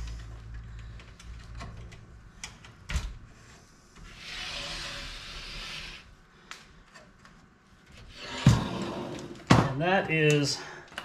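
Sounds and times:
cable rubbing scrape: 4.0s - 6.1s.

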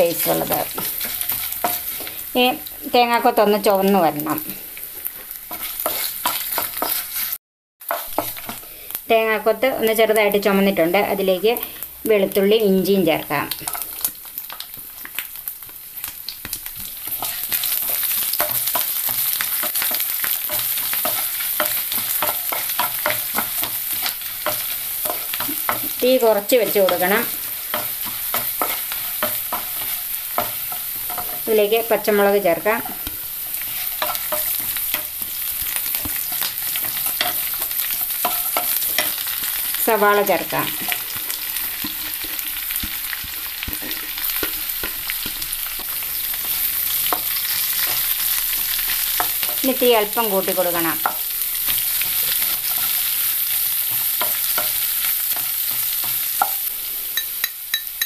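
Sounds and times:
oil sizzling in a frying pan: 0.0s - 58.0s
spatula scraping a pan: 0.2s - 2.4s, 5.1s - 8.8s, 16.8s - 50.4s.

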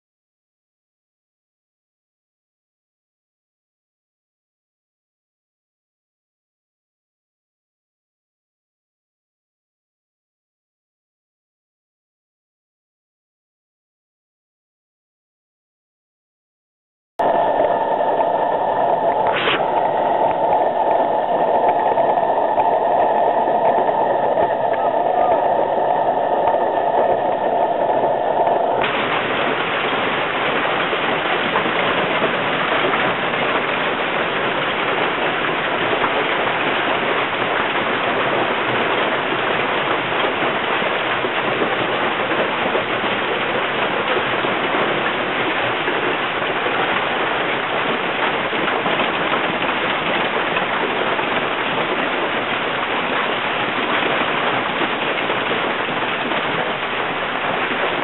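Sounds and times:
hail clattering on cars: 28.8s - 58.0s.

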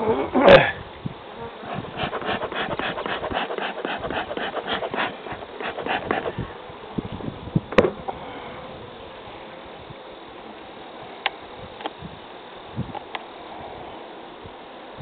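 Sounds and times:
bellows puffing: 1.7s - 6.4s.

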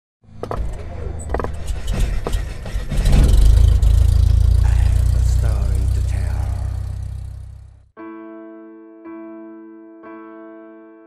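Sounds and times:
deep steady rumble: 0.7s - 7.9s
sharp hits: 1.3s - 7.8s.

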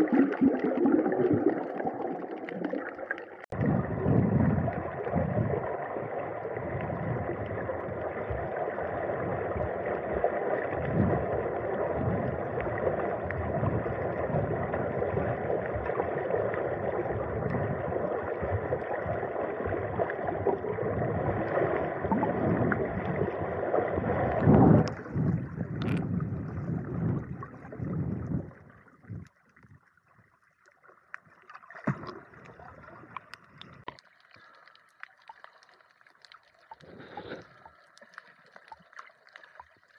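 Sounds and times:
faint splashes and clicks: 0.0s - 3.6s, 24.4s - 26.8s, 28.6s - 39.9s
water rushing and sloshing: 0.0s - 29.8s, 30.7s - 39.9s.

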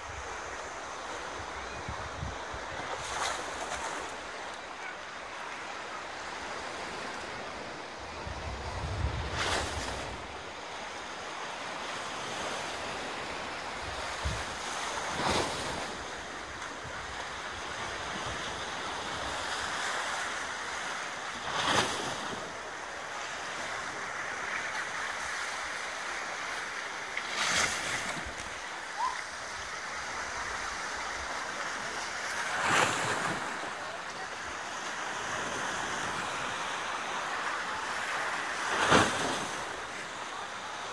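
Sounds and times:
wind rumble on microphone: 8.1s - 10.2s
waves washing against rocky shore: 12.0s - 40.9s.

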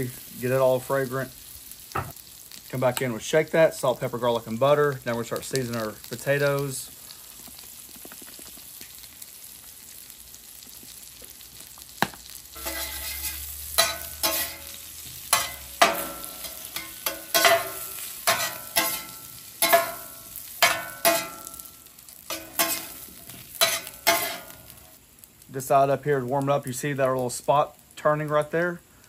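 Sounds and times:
potatoes sizzling: 0.0s - 29.0s
metal spatula scraping a griddle: 12.6s - 21.7s, 22.3s - 24.9s.

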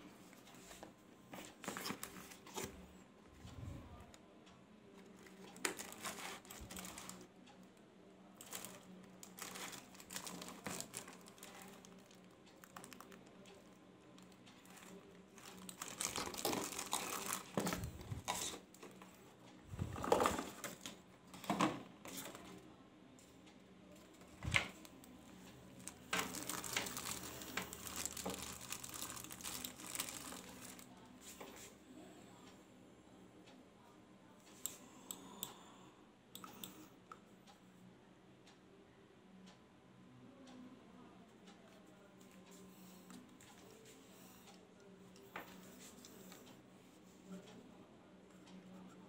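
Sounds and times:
plastic wrapping crinkling: 5.2s - 7.2s, 8.4s - 13.2s, 14.6s - 18.6s, 25.8s - 30.9s.

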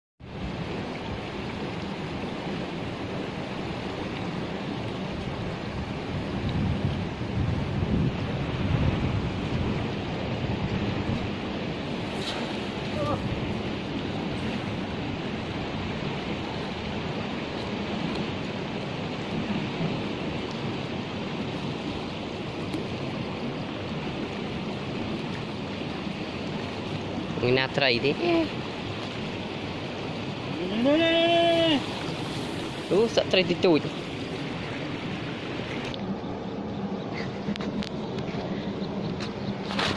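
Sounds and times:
flowing water rushing: 0.2s - 39.9s
wind buffeting microphone: 0.2s - 39.9s.

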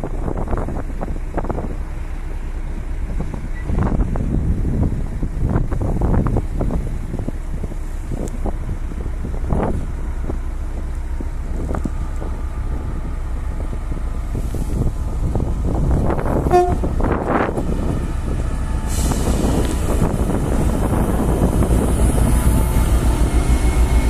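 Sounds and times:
locomotive engine and wheels rumbling: 0.0s - 24.0s
wind noise on microphone: 0.0s - 24.0s
train horn toot: 16.4s - 17.1s.

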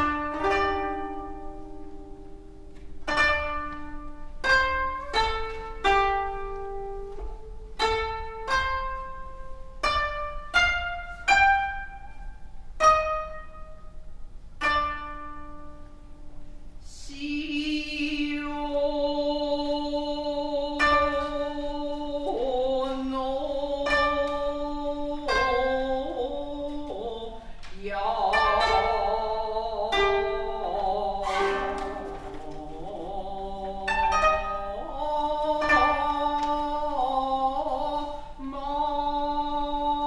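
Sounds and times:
koto plucked notes: 0.0s - 16.6s, 17.5s - 40.0s
person singing long held note: 17.1s - 40.0s.

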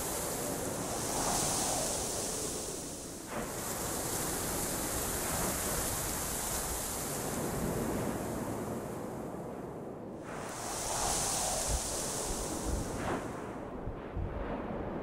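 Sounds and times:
wind rushing: 0.0s - 4.6s, 10.2s - 15.0s.

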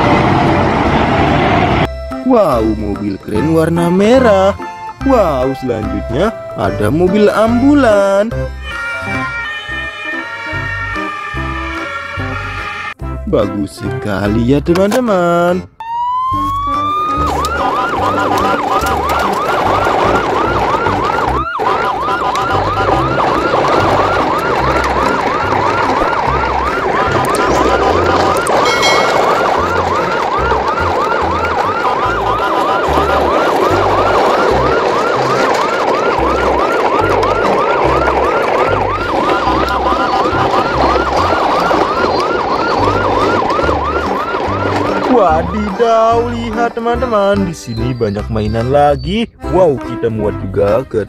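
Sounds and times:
electronic siren yelping: 7.8s - 12.6s, 15.8s - 46.3s.

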